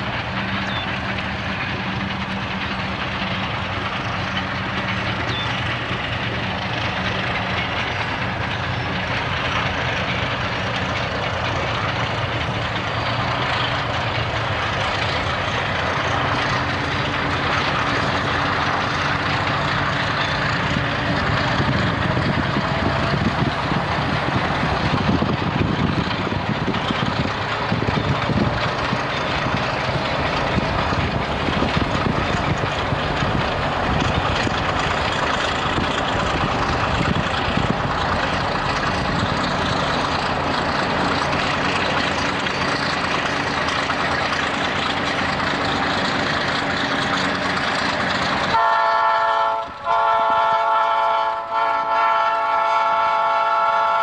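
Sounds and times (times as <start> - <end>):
diesel locomotive engine running: 0.0 - 54.0.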